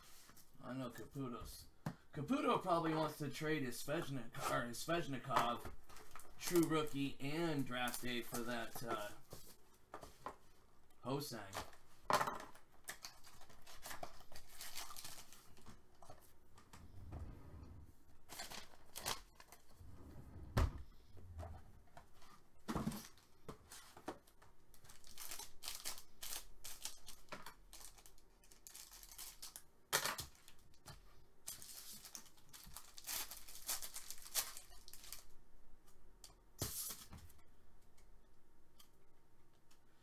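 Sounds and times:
foil wrappers crinkling and tearing: 12.8 - 15.8, 18.3 - 19.6, 24.7 - 30.8, 31.4 - 35.4.

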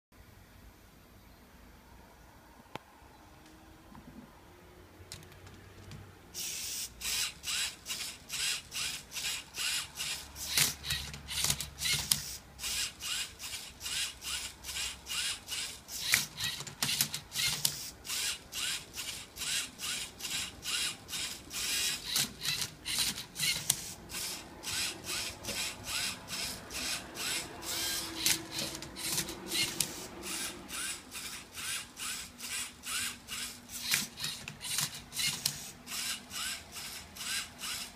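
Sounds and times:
robot motors whirring: 6.4 - 37.9.

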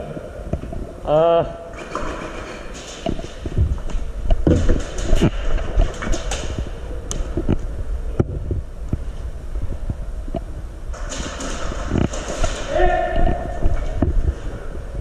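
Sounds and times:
low rumble: 3.3 - 15.0.

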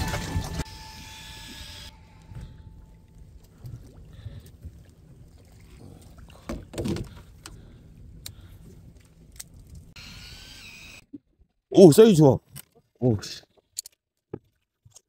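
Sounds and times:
wind and water rumble: 1.9 - 10.0.

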